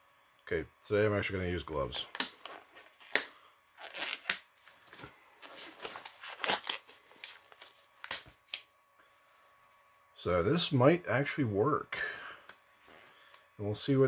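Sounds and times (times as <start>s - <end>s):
rubber gloves rustling: 1.8s - 10.0s.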